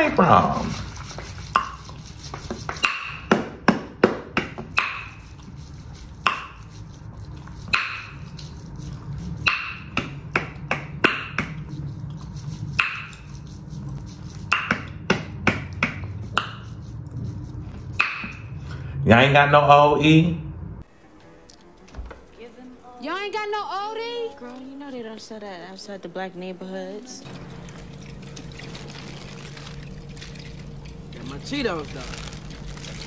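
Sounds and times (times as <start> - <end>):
low room hum: 0.0 - 33.0
chewing: 11.6 - 14.5
food packaging crinkling: 27.4 - 33.0.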